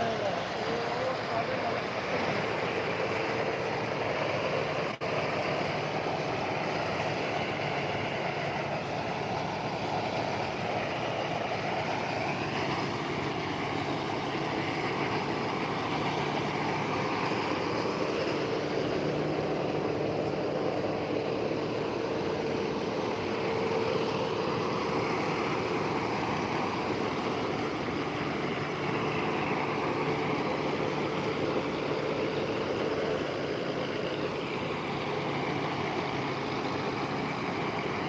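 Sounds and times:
thresher and tractor engine running: 0:00.0 - 0:38.0.

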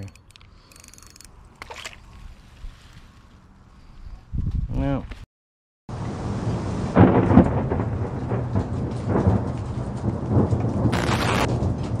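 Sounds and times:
rolling thunder: 0:05.9 - 0:12.0
thunder cracks: 0:06.1 - 0:12.0
rain hissing: 0:10.9 - 0:11.6.

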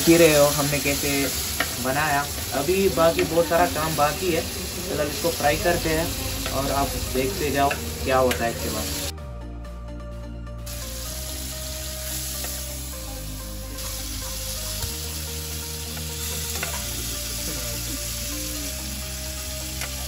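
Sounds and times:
chicken frying in hot oil: 0:00.0 - 0:09.1, 0:13.7 - 0:20.0
soft background music: 0:00.0 - 0:20.0.

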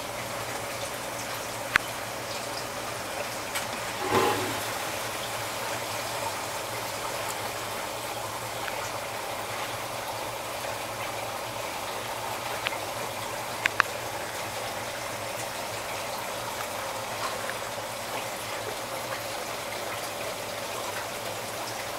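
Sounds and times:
air bubbling into water: 0:03.9 - 0:05.1.

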